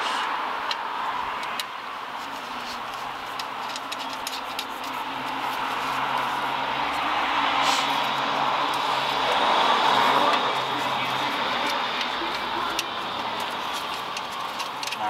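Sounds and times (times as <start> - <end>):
distant traffic hum: 0.0 - 15.0
bolts and nuts clicking: 0.6 - 7.1, 10.3 - 15.0.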